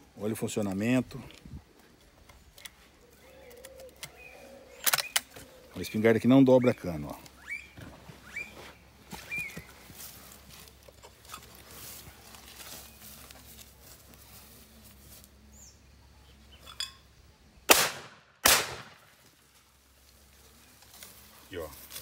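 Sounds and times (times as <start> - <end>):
shotgun shots: 17.7 - 19.1.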